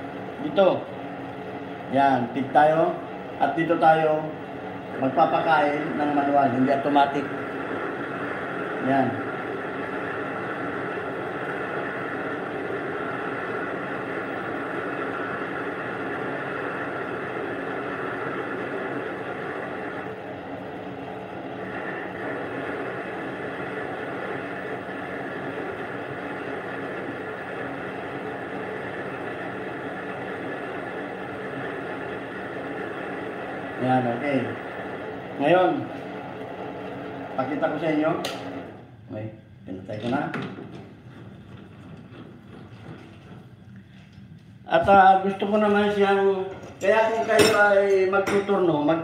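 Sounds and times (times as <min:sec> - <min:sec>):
metal lathe humming: 0:00.0 - 0:39.1.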